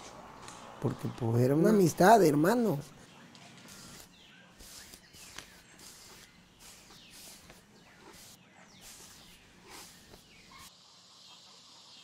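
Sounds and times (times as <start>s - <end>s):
birds chirping: 0.0s - 12.0s
brush sweeping horse coat: 3.6s - 10.7s.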